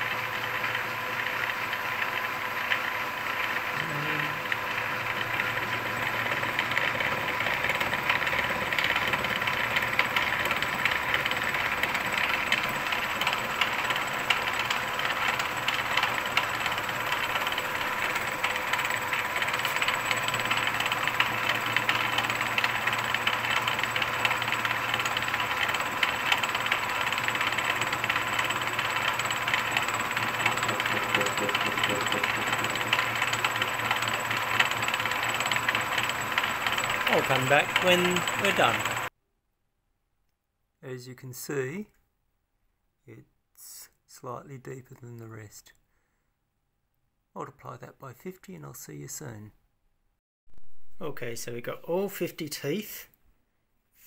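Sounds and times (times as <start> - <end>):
milling machine whine: 0.0 - 39.1
cutter teeth shearing steel: 3.7 - 39.1.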